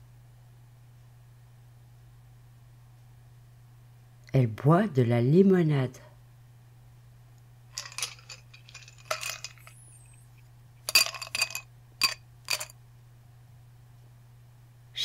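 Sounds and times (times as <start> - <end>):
hard objects clinking: 7.8 - 10.3, 10.9 - 12.7
light rattling: 7.8 - 12.7.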